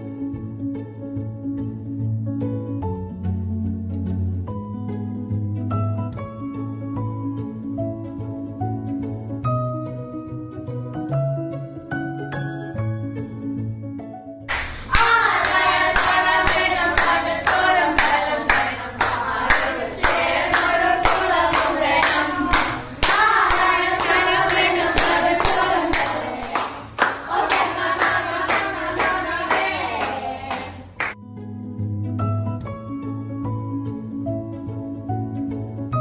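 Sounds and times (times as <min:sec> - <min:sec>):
hands clapping a steady beat: 0:14.5 - 0:31.2
children singing: 0:14.9 - 0:31.0.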